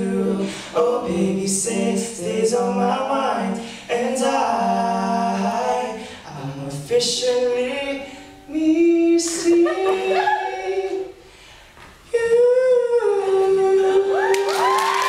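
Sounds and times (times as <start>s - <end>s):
audience cheering and whooping: 14.1s - 15.0s.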